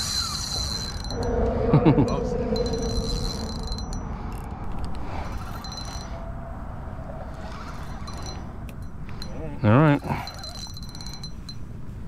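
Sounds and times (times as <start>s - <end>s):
fishing reel clicking: 0.0s - 1.2s, 2.6s - 6.2s, 7.4s - 8.9s, 10.2s - 11.5s
fishing reel whining: 0.0s - 1.5s, 2.1s - 6.3s, 7.3s - 9.4s, 10.0s - 11.6s
low rumble: 0.7s - 7.6s.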